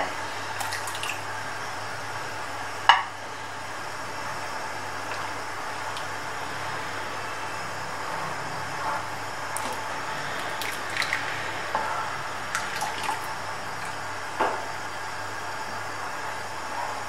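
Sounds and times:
steady hiss: 0.0 - 17.0
custard stirred in a pan: 8.9 - 14.2.

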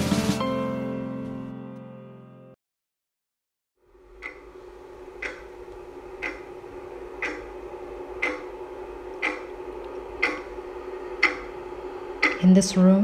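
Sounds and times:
steady low hum: 3.8 - 13.0
clock ticking: 4.2 - 4.6, 5.2 - 8.6, 9.2 - 9.6, 10.2 - 10.6, 11.2 - 11.6, 12.2 - 12.9.

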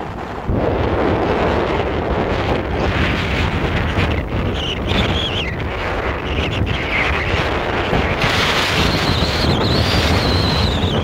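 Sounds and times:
wind buffeting microphone: 0.0 - 11.0
wavering high whistle: 8.7 - 11.0.

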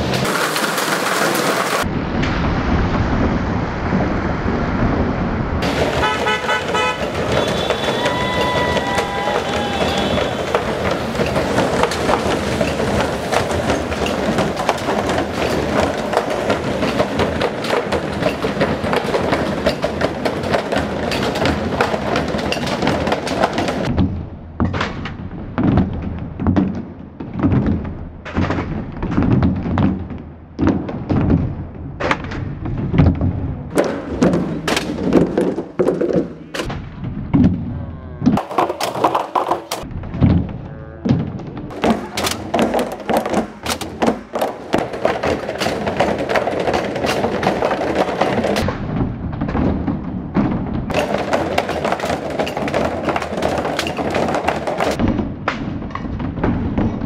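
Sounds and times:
noisy din of rapid knocks: 0.0 - 1.9, 5.6 - 37.7, 38.3 - 57.0
drumsticks beating plastic barrels: 5.6 - 24.0, 38.3 - 40.4, 41.0 - 48.7, 50.9 - 56.0.

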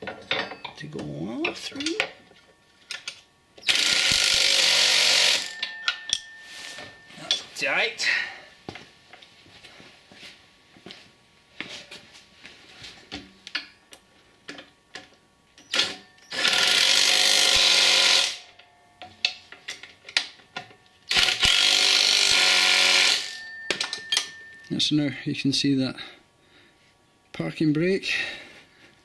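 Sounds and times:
metal clinks of tools: 5.2 - 7.6, 23.0 - 24.9.

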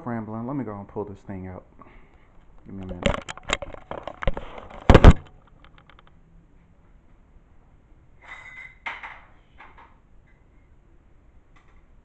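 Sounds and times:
handling clatter of clicks and knocks: 2.6 - 6.2.

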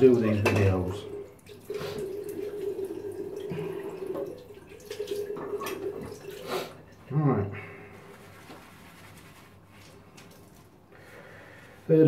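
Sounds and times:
water dripping and splashing: 0.0 - 7.1, 9.8 - 10.8
water running from tap into sink: 0.2 - 6.5.

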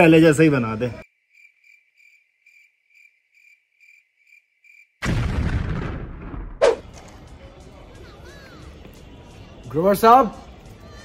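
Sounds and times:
cricket chirps: 1.0 - 5.0
loud boom: 5.0 - 6.8
short sharp swish: 6.6 - 6.8.

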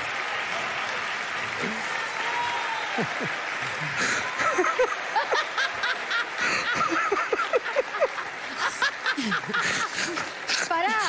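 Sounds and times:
scattered clapping: 0.0 - 11.0
audience laughing: 2.9 - 11.0.

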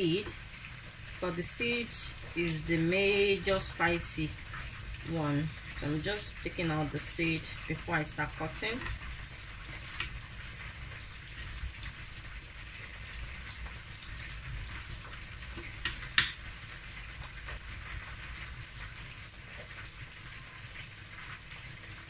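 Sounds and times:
fish frying in hot oil: 0.0 - 22.0.

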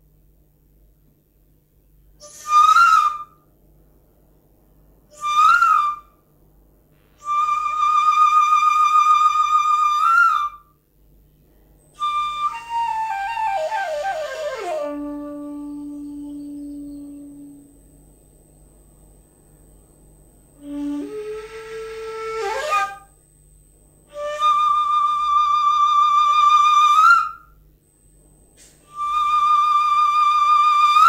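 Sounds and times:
bamboo flute: 2.2 - 3.5, 5.1 - 6.2, 7.2 - 10.8, 11.9 - 17.8, 20.6 - 23.2, 24.1 - 27.6, 28.8 - 31.0.

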